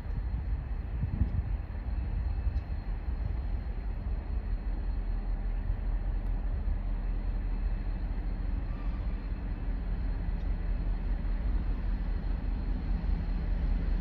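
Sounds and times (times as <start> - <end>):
distant diesel locomotive rumble: 0.0 - 14.0.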